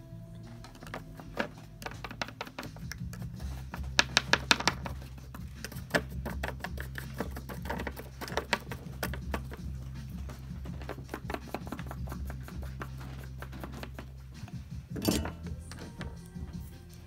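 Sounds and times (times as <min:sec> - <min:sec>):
low steady hum: 0:00.0 - 0:02.0, 0:14.2 - 0:17.0.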